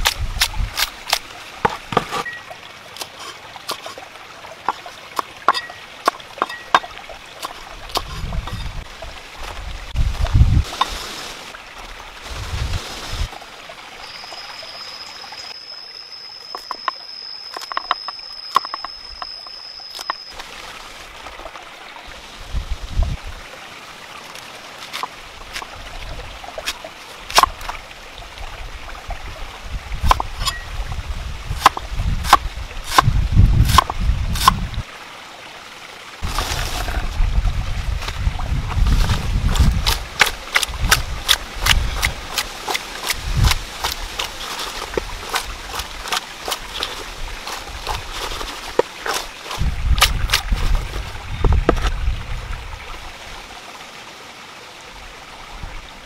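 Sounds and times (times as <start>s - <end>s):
thin high steady tone: 13.9s - 20.4s.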